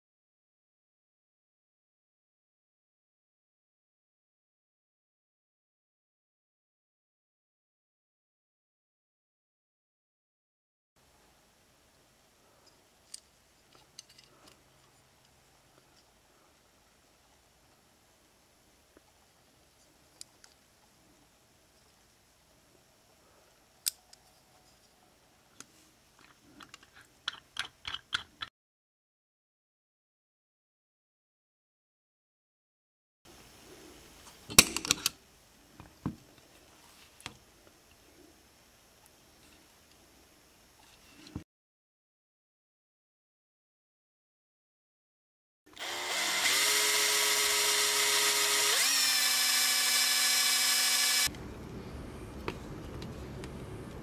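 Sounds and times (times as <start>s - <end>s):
metal toy car clicks and taps: 26.6s - 28.5s
power drill whining: 45.7s - 51.3s.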